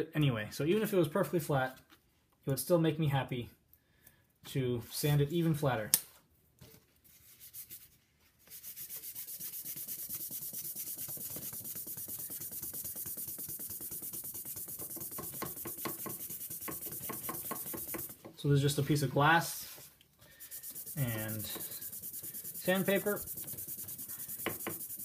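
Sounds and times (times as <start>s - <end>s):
reed rasping on sandpaper: 8.5s - 18.9s, 20.4s - 25.0s.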